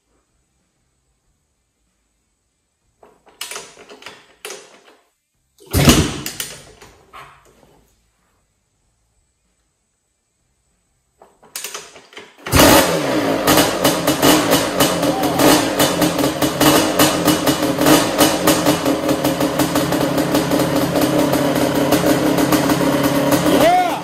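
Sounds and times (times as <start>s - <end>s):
two-stroke engine starting and running: 12.4s - 24.0s.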